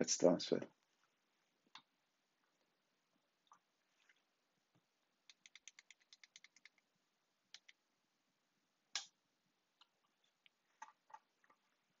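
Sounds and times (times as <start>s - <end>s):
computer mouse clicking: 5.2s - 6.9s, 7.5s - 7.8s.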